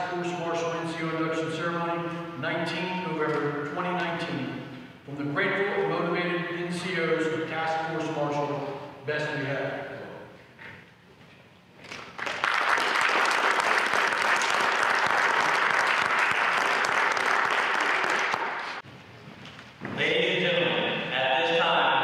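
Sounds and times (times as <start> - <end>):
audience applauding: 12.1 - 18.8.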